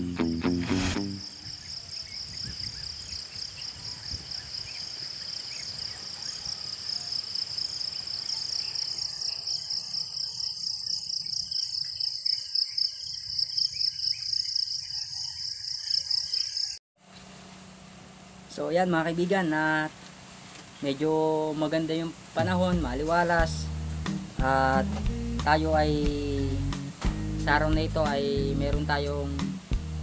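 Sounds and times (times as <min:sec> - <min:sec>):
crickets trilling: 0:01.0 - 0:16.8.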